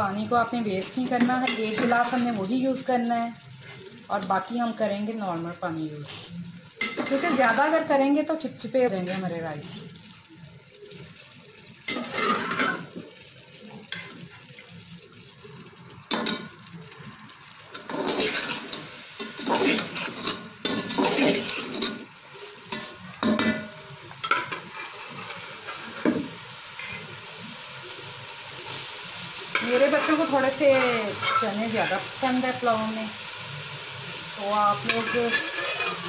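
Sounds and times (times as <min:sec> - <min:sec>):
low sizzle: 0:00.0 - 0:36.0
spoon scraping metal pot: 0:11.9 - 0:12.9, 0:34.8 - 0:36.0.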